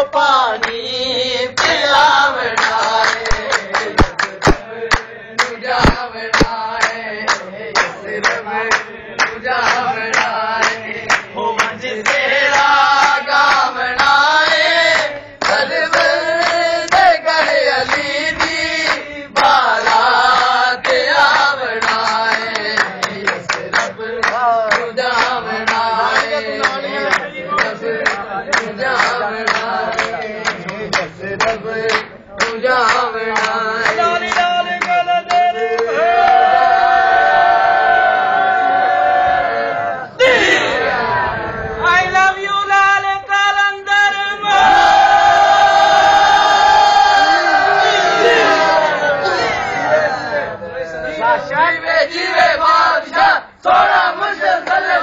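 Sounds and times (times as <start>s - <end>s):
men singing: 0.0s - 36.8s, 40.2s - 55.0s
hand-clapping on the beat: 0.1s - 36.5s, 54.0s - 55.0s.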